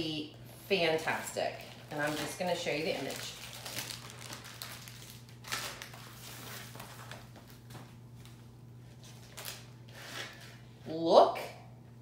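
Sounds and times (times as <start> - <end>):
low steady hum: 0.0 - 12.0
plastic film rustling and crinkling: 1.0 - 10.5.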